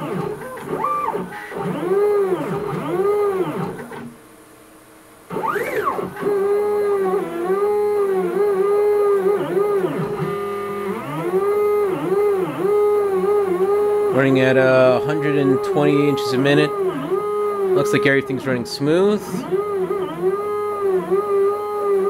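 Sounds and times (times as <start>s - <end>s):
stepper motor whine: 5.0s - 22.0s.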